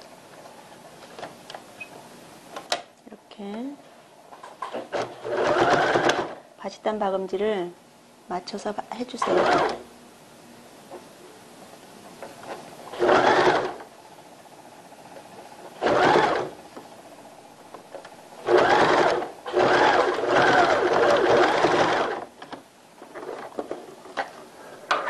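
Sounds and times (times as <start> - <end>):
electric sewing machine stitching: 4.7 - 6.4, 9.2 - 9.8, 12.9 - 13.9, 15.8 - 16.6, 18.4 - 22.4.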